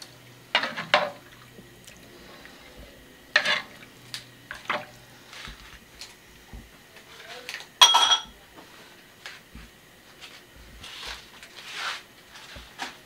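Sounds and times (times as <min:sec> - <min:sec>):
utensils clinking: 0:07.5 - 0:08.4
ladle clanging on wok: 0:07.8 - 0:08.3.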